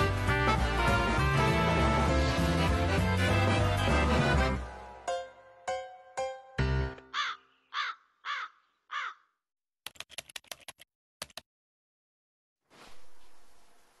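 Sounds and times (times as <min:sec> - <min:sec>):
crow cawing: 0:07.1 - 0:09.3
sharp typing-like clicks: 0:09.8 - 0:11.4.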